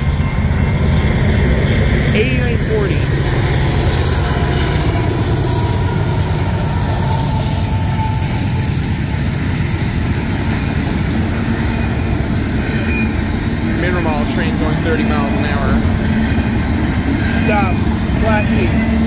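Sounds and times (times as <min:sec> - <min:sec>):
freight train rumbling past: 0:00.0 - 0:19.0.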